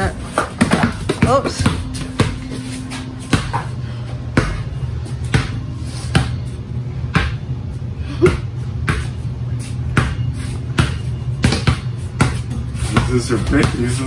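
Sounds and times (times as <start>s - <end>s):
basketball dribbling on hard floor: 0.0s - 6.5s, 9.9s - 14.0s.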